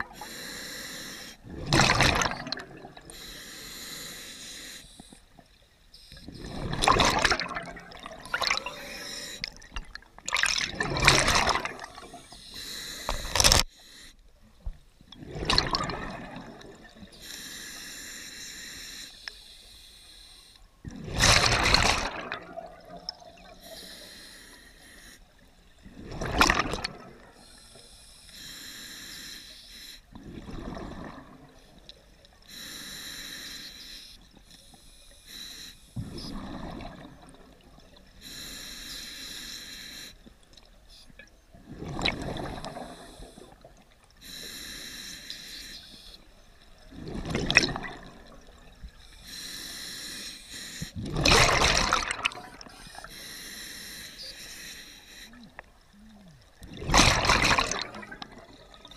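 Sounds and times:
hissing inhale through regulator: 0.0s - 1.4s, 3.0s - 6.8s, 8.3s - 9.7s, 11.8s - 14.3s, 17.0s - 20.8s, 23.4s - 25.5s, 27.2s - 30.8s, 31.5s - 36.8s, 38.0s - 40.3s, 42.3s - 46.6s, 48.1s - 51.0s, 52.3s - 56.3s
rush of exhaled bubbles: 1.4s - 3.1s, 6.3s - 12.2s, 15.2s - 17.1s, 20.8s - 23.6s, 25.8s - 27.4s, 30.2s - 31.6s, 36.0s - 37.7s, 41.6s - 43.8s, 46.9s - 48.9s, 51.0s - 52.7s, 56.6s - 58.9s.

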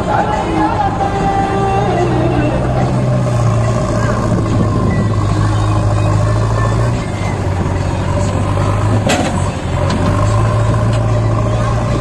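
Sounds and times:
diesel engines running: 0.0s - 12.0s.

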